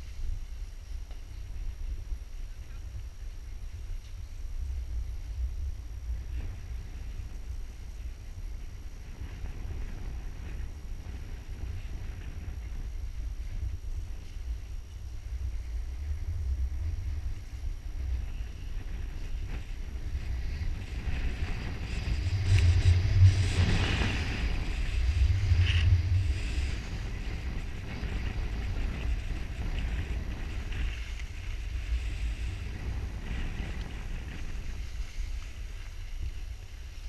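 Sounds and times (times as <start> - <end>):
wind buffeting microphone: 0.0 - 37.0
skis hissing over snow: 6.1 - 37.0.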